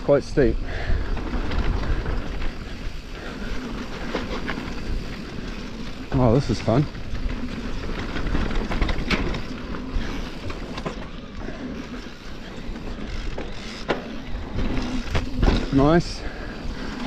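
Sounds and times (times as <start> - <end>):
wind buffeting microphone: 0.0 - 10.8
bike tyres rolling on dirt: 0.0 - 17.0
bike knocking and rattling: 0.1 - 17.0.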